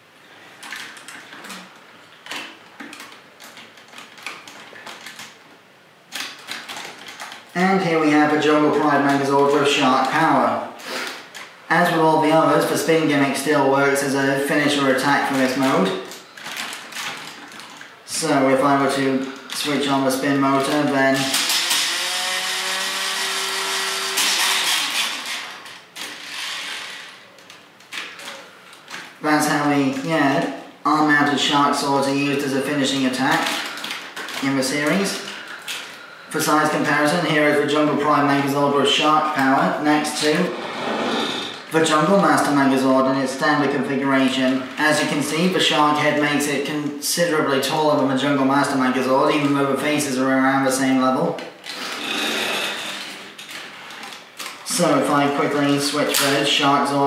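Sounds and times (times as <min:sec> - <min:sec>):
faint mechanical noise: 0:00.0 - 0:57.0
toy motor whirring: 0:21.2 - 0:27.2, 0:51.7 - 0:53.2.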